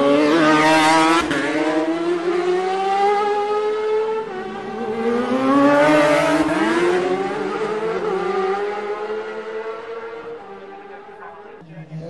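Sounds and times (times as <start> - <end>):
racing motorcycles passing: 0.0 - 12.0.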